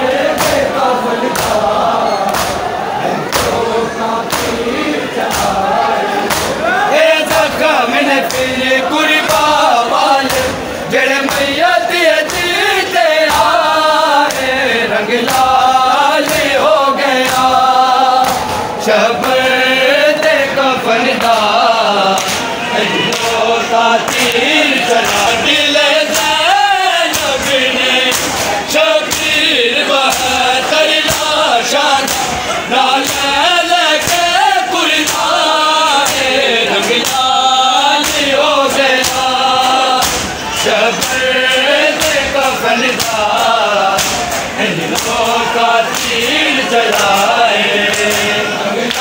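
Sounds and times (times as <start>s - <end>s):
men chanting a lament in unison: 0.0s - 49.0s
hands slapping bare chests: 4.3s - 4.7s, 22.2s - 22.5s, 27.1s - 28.5s, 32.0s - 32.4s, 36.0s - 37.3s, 38.0s - 40.3s, 44.0s - 46.3s, 46.9s - 48.3s.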